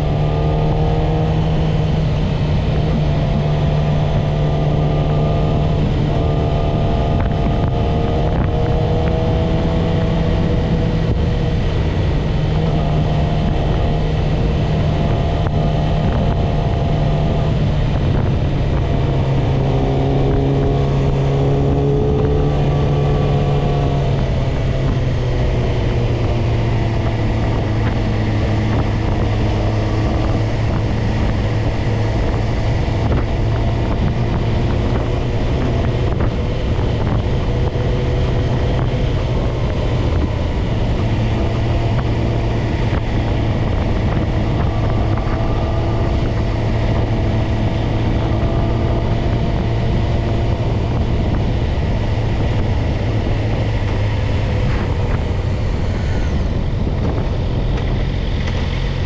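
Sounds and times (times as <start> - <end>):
motorcycle engine running: 0.0 - 59.0
wind noise on microphone: 0.0 - 59.0.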